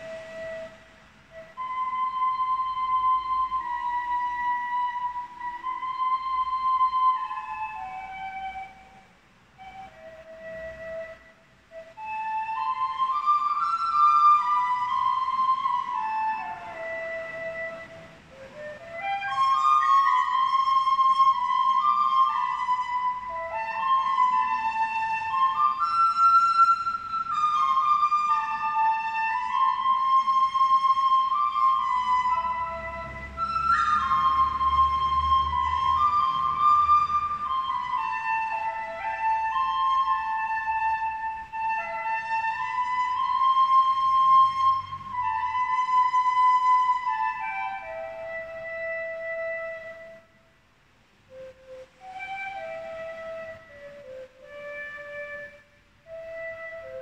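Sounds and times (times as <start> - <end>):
air whistling through door: 0.0 - 57.0
slow melody of pure tones: 0.0 - 57.0.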